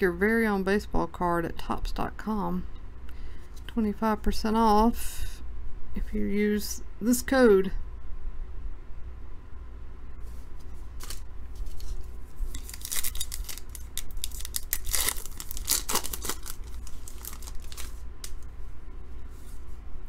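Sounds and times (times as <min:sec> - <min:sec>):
cards being handled: 0:10.6 - 0:18.5
foil wrapper tearing: 0:11.0 - 0:18.4.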